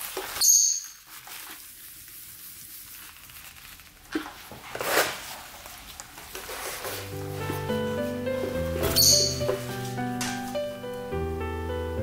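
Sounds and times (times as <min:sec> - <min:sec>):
scratchy rustling: 0:00.0 - 0:10.6
lovebird shrill chirp: 0:00.4 - 0:01.0, 0:08.8 - 0:09.6.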